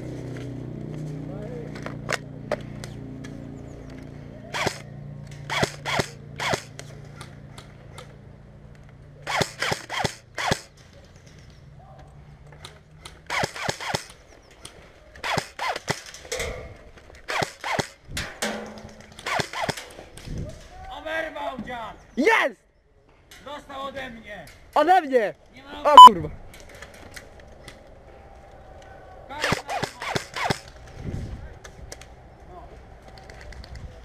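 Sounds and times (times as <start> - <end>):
airsoft rifle shots: 4.5 - 7.3, 9.2 - 10.7, 13.3 - 14.1, 17.3 - 19.9.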